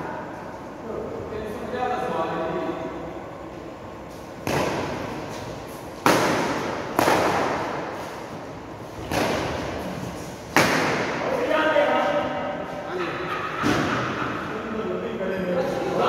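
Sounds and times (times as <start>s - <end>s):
rackets hitting shuttlecock: 4.4s - 5.1s, 6.0s - 8.0s, 9.0s - 9.8s, 10.5s - 11.3s.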